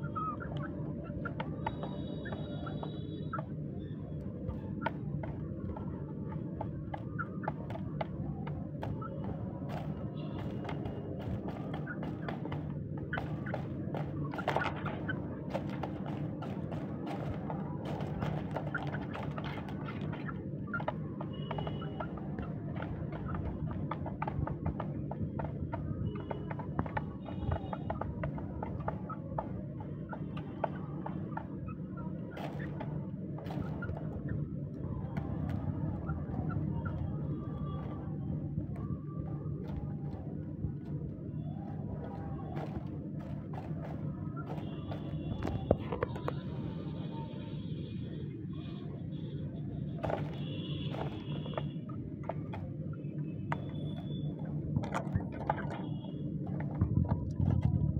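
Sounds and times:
low mechanical hum: 0.0s - 57.9s
beaks tapping plastic feeder: 4.3s - 41.1s, 50.0s - 57.6s
chickens pecking plastic cup: 4.7s - 46.6s, 50.0s - 57.9s.

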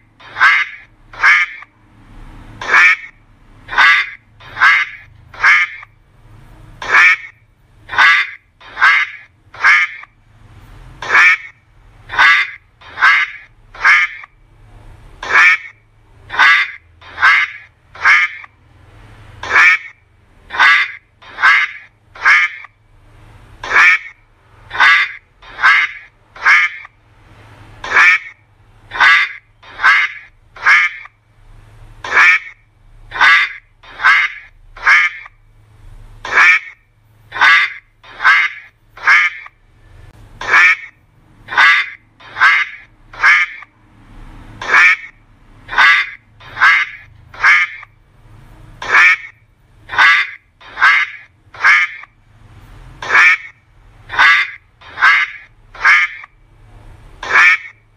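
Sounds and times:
duck quacking: 0.0s - 1.7s, 2.5s - 5.9s, 6.8s - 10.2s, 11.0s - 14.4s, 15.2s - 18.6s, 19.4s - 22.8s, 23.6s - 27.0s, 27.8s - 31.2s, 32.0s - 35.4s, 36.2s - 39.6s, 40.4s - 43.7s, 44.6s - 47.9s, 48.8s - 52.2s, 52.9s - 56.4s, 57.2s - 57.8s.

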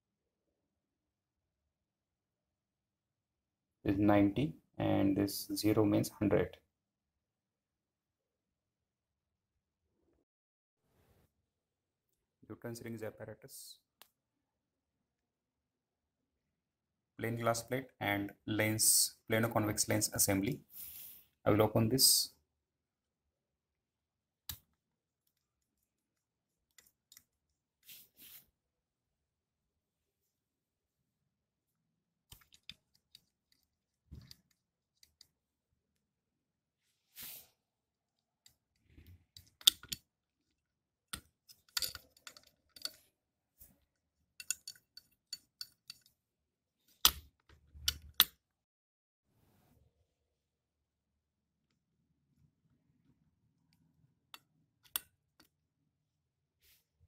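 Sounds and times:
metal screw click: 41.1s - 43.0s, 44.4s - 46.1s.

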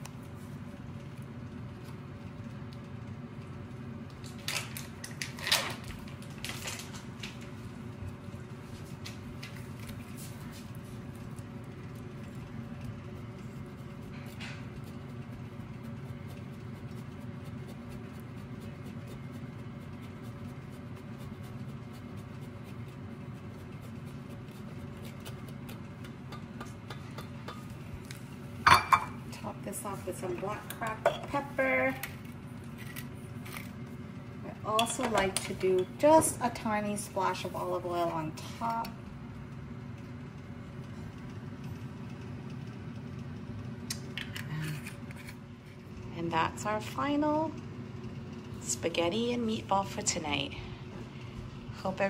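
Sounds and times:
steady low hum: 0.0s - 52.0s
cheese grating on rasp grater: 12.0s - 26.1s.

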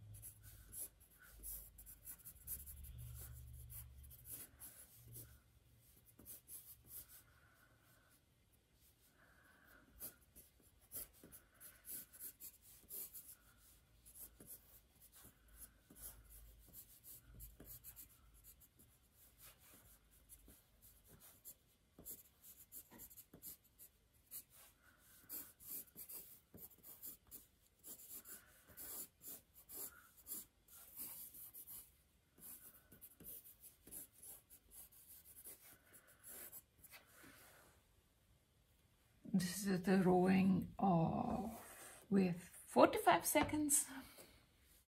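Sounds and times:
pen scratching on paper: 0.2s - 7.3s, 9.7s - 37.2s.

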